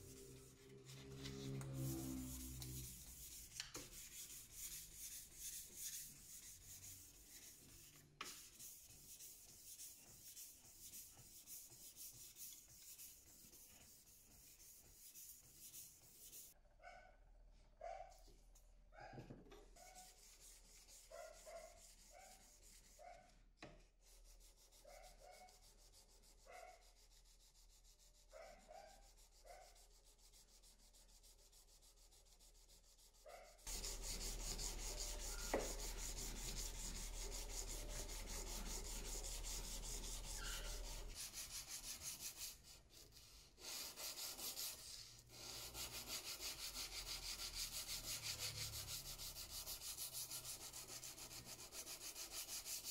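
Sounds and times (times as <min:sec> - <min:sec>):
sandpaper rubbing on steel: 0:24.1 - 0:52.9.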